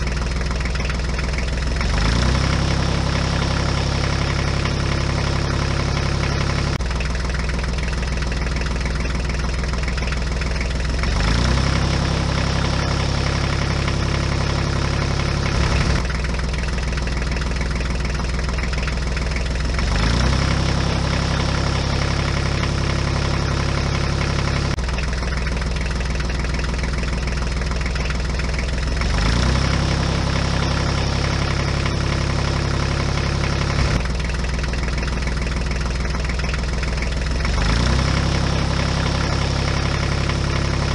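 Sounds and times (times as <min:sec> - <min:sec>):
tractor engine running: 0:00.0 - 0:40.9.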